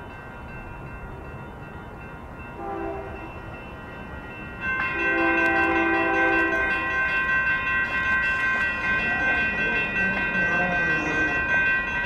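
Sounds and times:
crossing warning bells ringing: 0.0s - 12.0s
locomotive air horn blasts: 2.6s - 3.3s, 5.0s - 7.0s.

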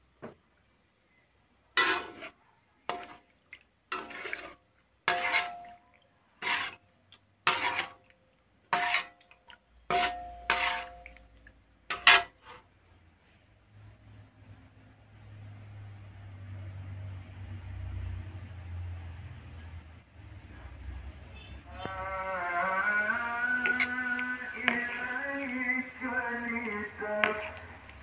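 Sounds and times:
metal spatula scraping wok: 1.7s - 3.3s, 3.9s - 5.8s, 6.4s - 8.1s, 8.7s - 11.3s, 11.9s - 12.8s, 21.4s - 28.0s.

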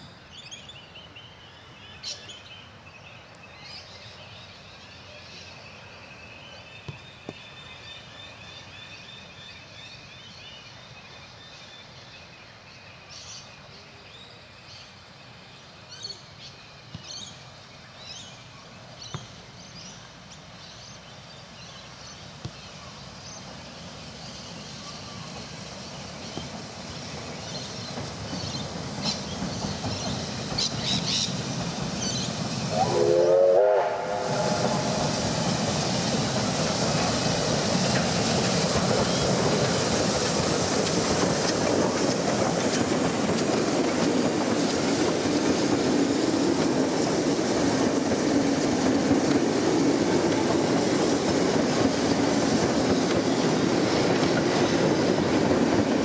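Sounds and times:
steam train rumble: 17.1s - 56.0s
steam whistle blast: 32.7s - 35.1s.

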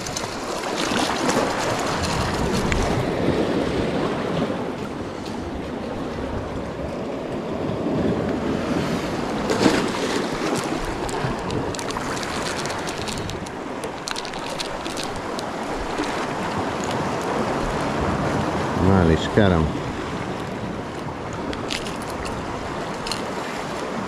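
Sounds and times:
surf washing on rocky shore: 0.0s - 24.0s
wind buffeting microphone: 1.2s - 24.0s
small clicks and crackles: 9.5s - 17.8s, 21.5s - 23.3s.

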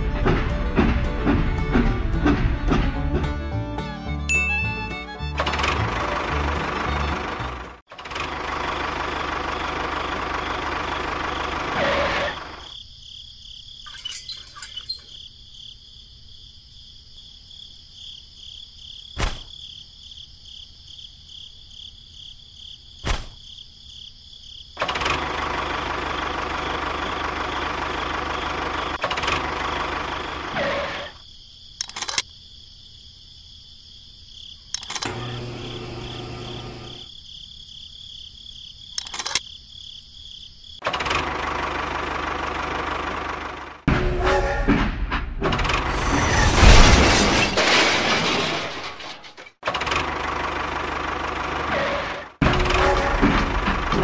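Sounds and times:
sharp clicks: 31.8s - 32.3s, 39.0s - 39.4s
small motor running: 34.8s - 37.1s.

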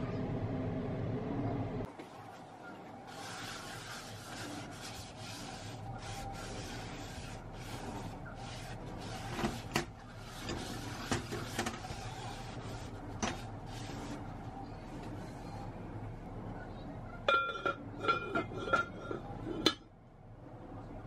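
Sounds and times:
paper towel rubbing inside pot: 2.2s - 15.7s.

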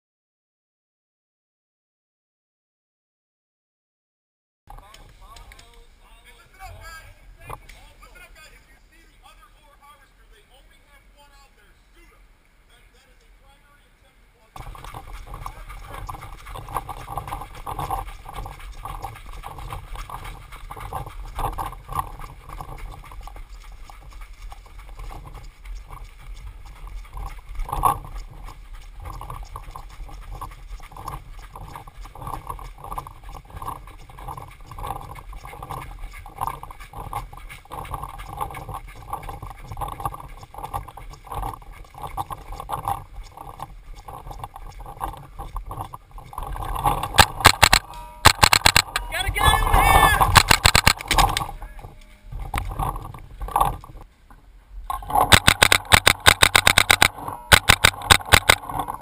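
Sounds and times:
gear jostling thuds: 14.6s - 54.1s
footsteps jogging on trail: 14.6s - 54.2s, 54.9s - 59.0s.

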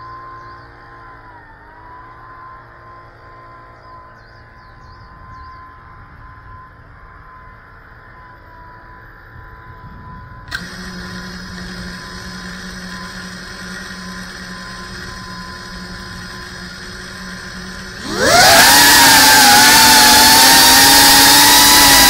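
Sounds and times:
drone motors humming at idle: 0.0s - 22.0s
drone motors arming click: 10.4s - 22.0s.

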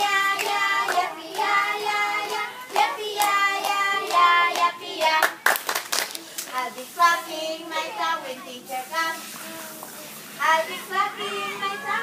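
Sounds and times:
children singing: 0.0s - 5.2s, 10.5s - 12.0s
hand claps: 0.0s - 6.9s.

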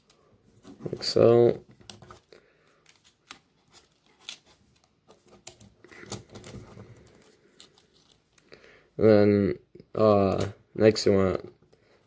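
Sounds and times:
soft handling rustle: 0.0s - 8.5s.

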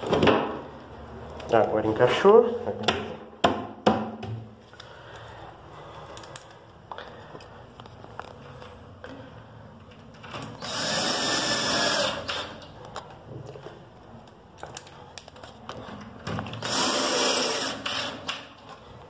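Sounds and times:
cordless drill driving screws: 10.6s - 12.6s, 16.5s - 18.4s.

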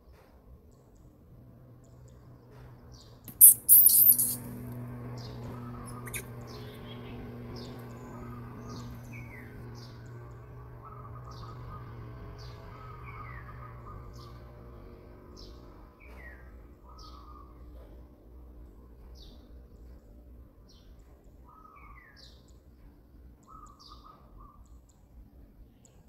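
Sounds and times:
steady low hum: 1.0s - 20.4s
small birds chirping: 1.8s - 17.8s
shrill high-pitched squeaks: 3.3s - 4.5s, 5.8s - 6.3s.

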